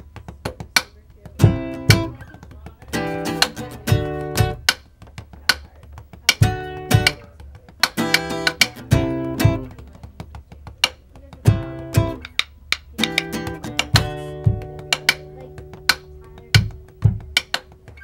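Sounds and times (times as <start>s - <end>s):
acoustic guitar strumming: 1.3s - 5.1s, 6.2s - 9.9s, 11.4s - 18.0s.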